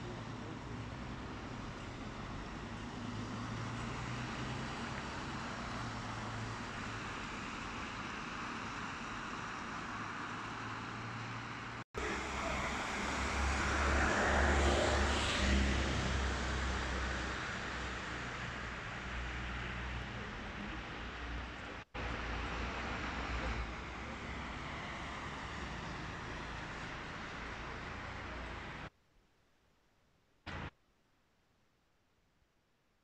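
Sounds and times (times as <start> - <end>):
traffic hum on wet roads: 0.0 - 28.9, 30.5 - 30.7
vehicle passing: 10.5 - 19.9.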